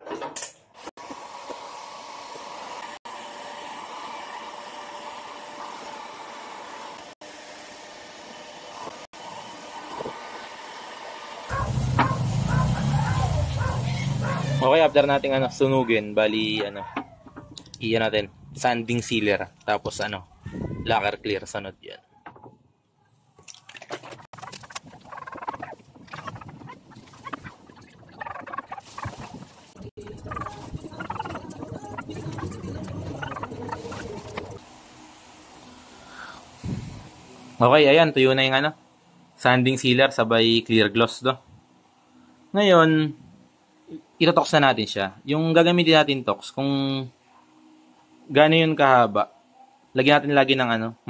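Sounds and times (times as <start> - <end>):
poultry calling: 11.5 - 14.6, 24.4 - 29.3.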